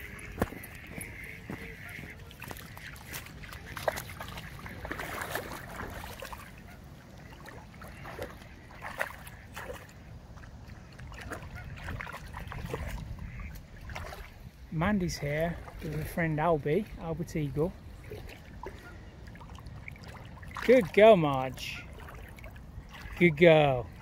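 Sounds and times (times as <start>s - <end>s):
dog splashing through water: 0.0s - 14.4s.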